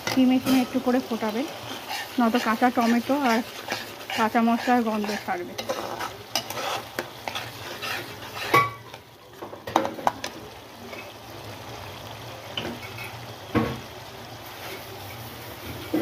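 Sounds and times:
spatula scraping a pan: 0.0s - 9.0s
gravy simmering and sizzling: 0.0s - 16.0s.

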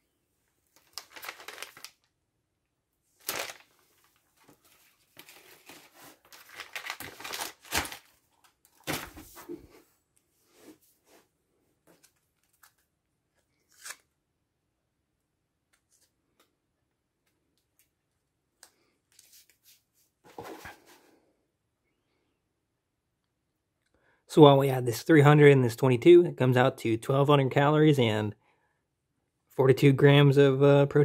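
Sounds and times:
packaging crinkled and torn: 0.8s - 2.1s, 3.2s - 4.2s, 5.1s - 9.1s, 13.7s - 14.0s.

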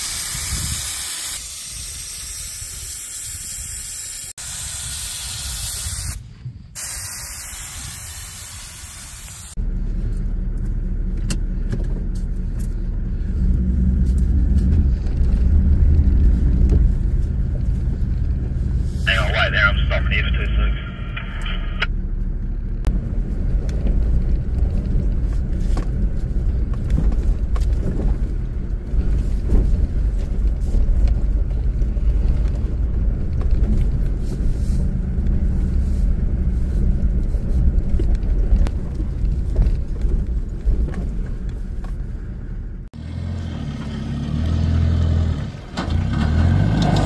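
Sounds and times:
vehicle engine and road rumble: 0.0s - 47.0s
engine working hard uphill: 9.6s - 47.0s.

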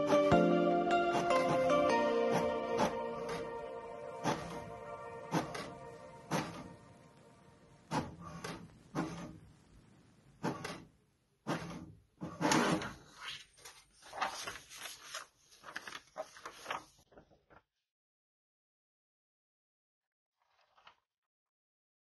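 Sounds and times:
paper being handled: 5.3s - 6.8s, 12.6s - 17.6s.

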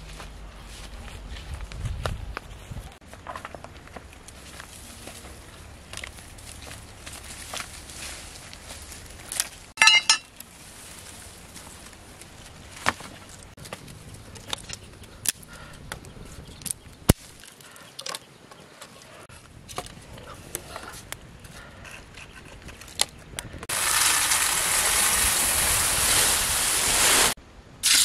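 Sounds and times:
twigs snapping: 5.8s - 9.7s, 16.6s - 18.3s
ringing clink: 9.8s - 10.3s.

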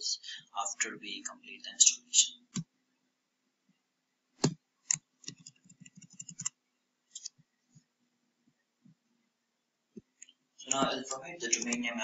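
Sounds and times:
mouse and keyboard clicks: 4.4s - 7.3s.

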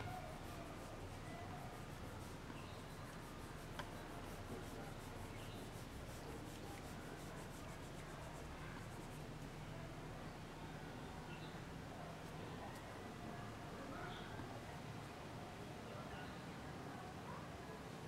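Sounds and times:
crayon rubbing on paper: 0.1s - 9.2s.

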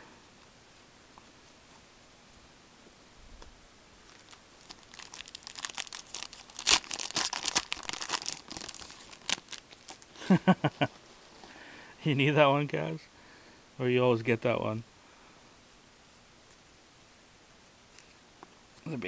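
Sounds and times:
wrapper tearing and crinkling: 4.0s - 10.2s.

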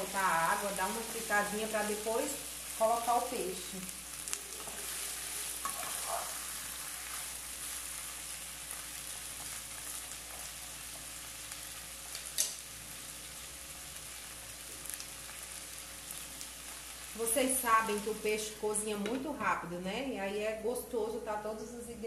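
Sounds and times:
vegetables sizzling in a frying pan: 0.0s - 21.4s
wooden spoon stirring: 4.5s - 6.4s.

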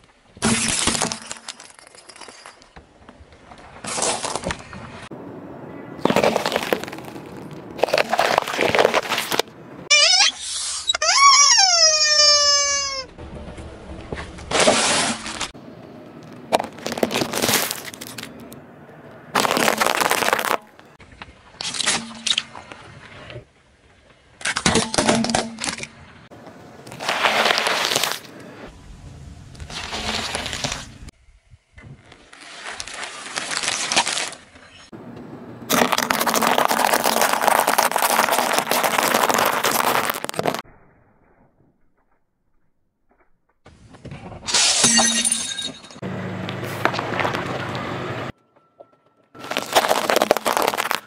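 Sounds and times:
tyre crushing crunchy objects: 6.0s - 9.5s, 16.3s - 18.5s, 19.3s - 21.0s, 26.8s - 28.3s, 35.7s - 40.6s, 49.4s - 51.0s.

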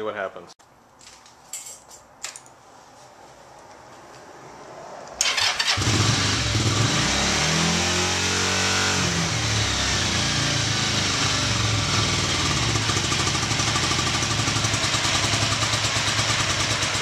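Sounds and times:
motorcycle engine idling: 9.2s - 17.0s.

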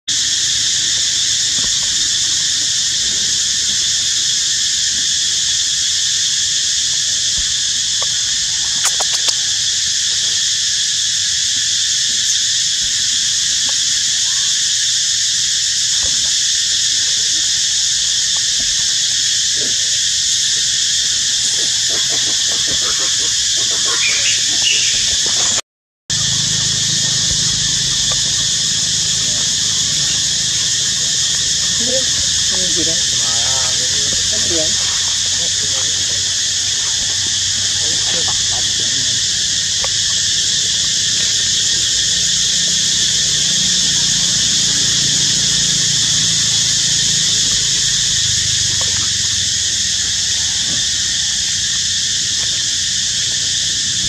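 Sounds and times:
forest insects droning: 0.0s - 54.0s.

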